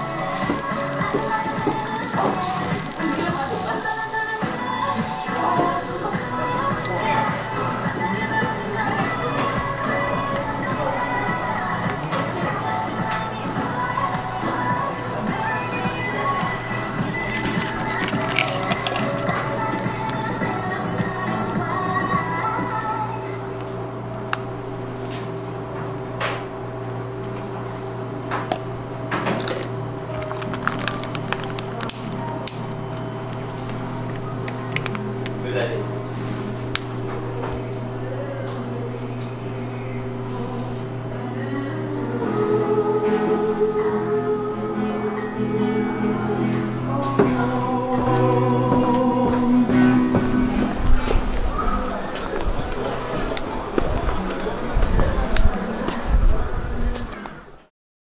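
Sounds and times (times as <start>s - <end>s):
singing: 0.0s - 23.8s, 30.7s - 57.7s
music of long held chords: 0.0s - 56.9s
plastic pouch crinkling: 17.4s - 19.4s, 29.4s - 35.4s.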